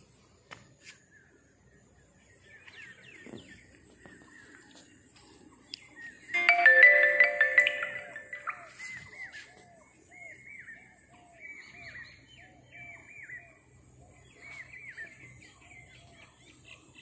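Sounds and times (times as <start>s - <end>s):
marimba-like tune: 6.4s - 8.8s.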